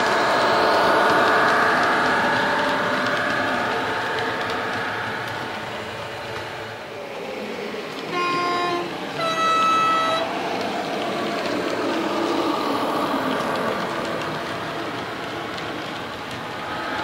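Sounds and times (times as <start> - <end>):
two-tone train horn: 8.1 - 10.4.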